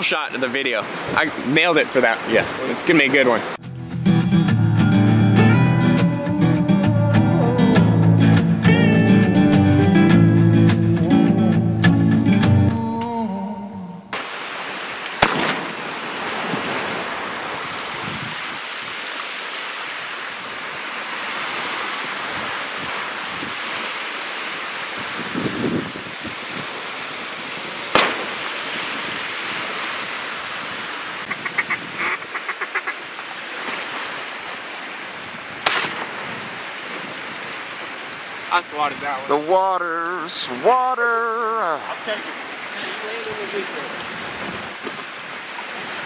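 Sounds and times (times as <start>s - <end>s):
choppy water washing: 0.0s - 3.6s, 14.2s - 46.0s
sharp cracks: 15.0s - 16.1s, 27.9s - 28.8s, 35.6s - 36.2s
wind on microphone: 16.1s - 19.1s, 20.0s - 24.0s, 24.6s - 32.4s, 35.1s - 39.1s, 44.0s - 46.0s
ducks quacking: 31.2s - 33.0s.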